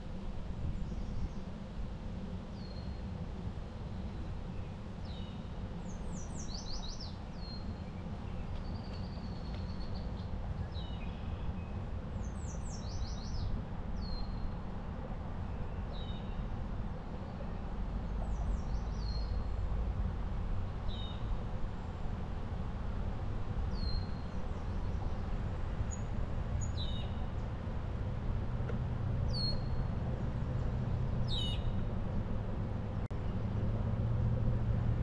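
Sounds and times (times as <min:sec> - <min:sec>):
bicycle and wind rumble: 0:00.0 - 0:35.0
songbirds singing: 0:00.6 - 0:01.6, 0:02.5 - 0:03.2, 0:04.0 - 0:14.7, 0:15.4 - 0:19.8, 0:20.9 - 0:22.1, 0:23.7 - 0:27.6, 0:29.3 - 0:31.9.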